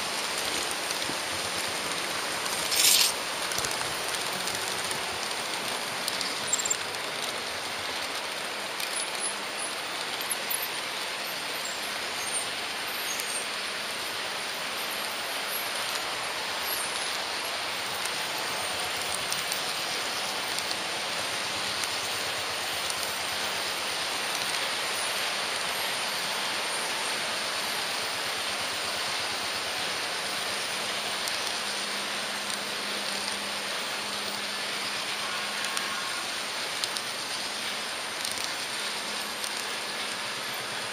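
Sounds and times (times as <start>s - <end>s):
model train wheels rattling: 0.0s - 11.8s.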